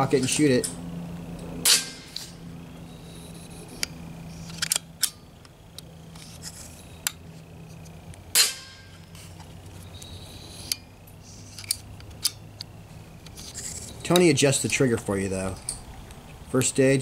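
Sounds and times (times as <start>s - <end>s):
air rifle lever clicks: 3.8s - 5.2s.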